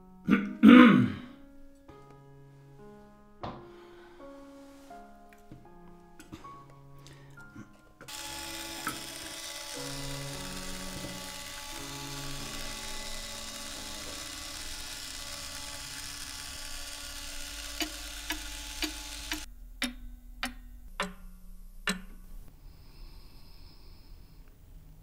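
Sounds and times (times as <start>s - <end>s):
mechanical whirr: 8.1s - 19.5s
cuckoo clock ticking: 8.1s - 22.5s.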